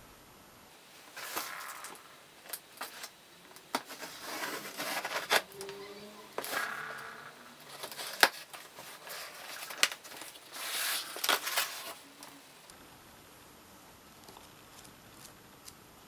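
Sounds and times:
cardboard scraping and rustling: 0:03.7 - 0:05.8, 0:06.4 - 0:12.0.

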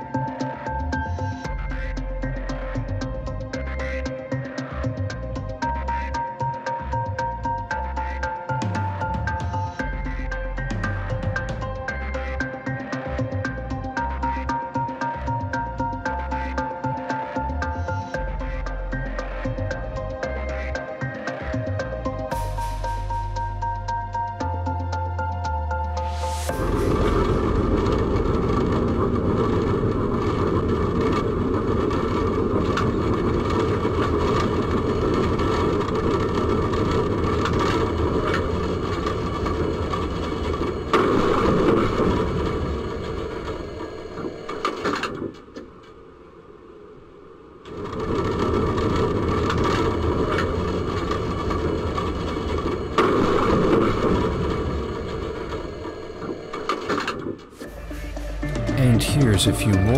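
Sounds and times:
tram rumbling along rails: 0:25.9 - 0:46.5, 0:47.6 - 0:59.9
sudden loud noise: 0:26.0 - 0:38.0, 0:57.6 - 0:59.9.

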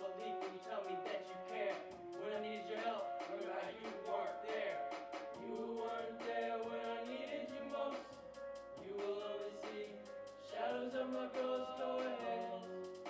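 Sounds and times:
fast ticking beat: 0:00.0 - 0:13.0
keyboard and electronic backing music: 0:00.0 - 0:13.0
layered voices: 0:00.0 - 0:13.0.

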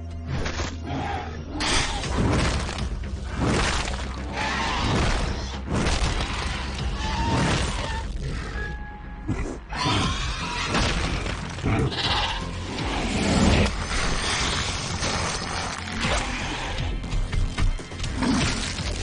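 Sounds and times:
dramatic music: 0:00.0 - 0:19.0
crashing and smashing effects: 0:01.6 - 0:08.2, 0:10.6 - 0:11.9.

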